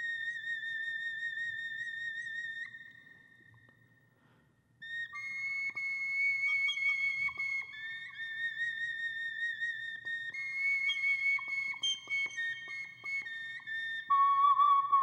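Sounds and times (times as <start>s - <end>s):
whistle-like held notes: 10.0s - 15.0s.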